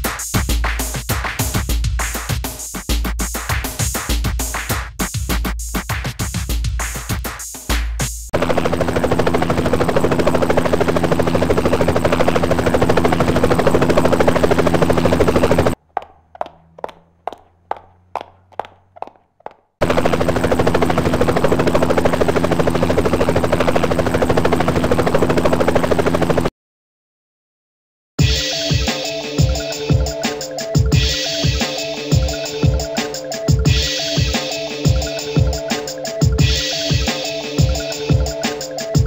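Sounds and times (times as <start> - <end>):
rapid machine-gun-like rattle: 8.4 - 15.8, 19.8 - 26.5.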